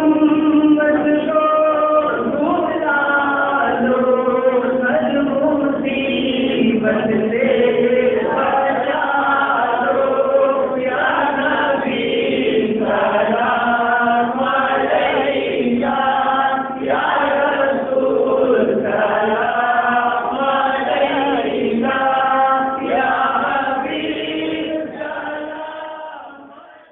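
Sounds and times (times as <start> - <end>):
man singing into a microphone: 0.0 - 11.9
men singing in unison: 0.0 - 26.9.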